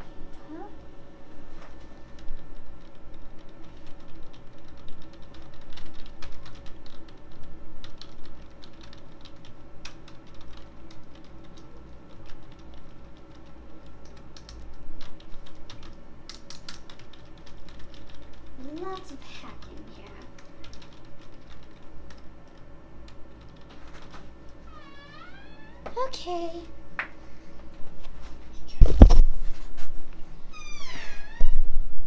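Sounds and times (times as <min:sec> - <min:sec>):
keyboard typing: 0:02.1 - 0:24.2.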